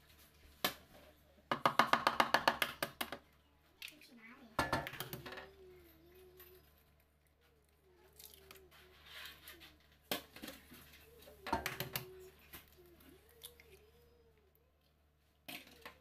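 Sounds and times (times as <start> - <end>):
eggs cracking on plastic bowl: 1.5 - 5.5, 10.1 - 13.7.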